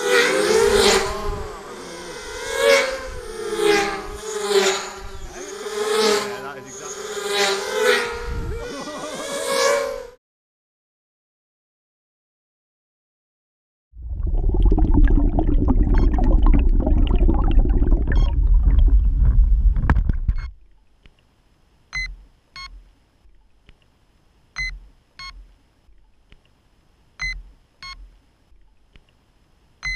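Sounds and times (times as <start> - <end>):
loud rumbling rush: 14.0 - 20.0.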